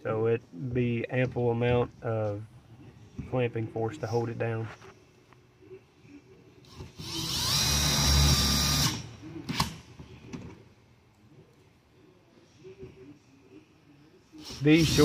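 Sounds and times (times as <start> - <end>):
impact driver whining: 6.7 - 9.8, 14.4 - 15.0.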